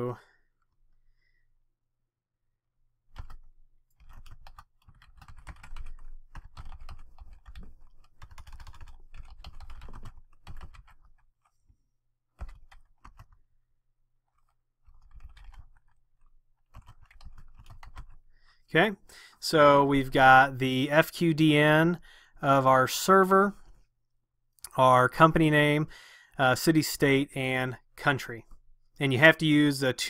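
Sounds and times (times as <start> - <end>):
computer keyboard typing: 3.1 - 11.5, 12.3 - 13.4, 14.2 - 18.3.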